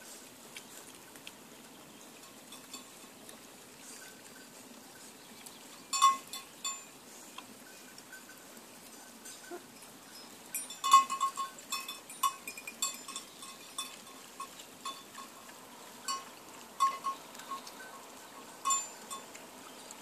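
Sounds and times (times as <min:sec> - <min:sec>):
small bell clinking: 0:05.9 - 0:06.9, 0:09.0 - 0:15.5, 0:16.1 - 0:18.0, 0:18.6 - 0:19.3.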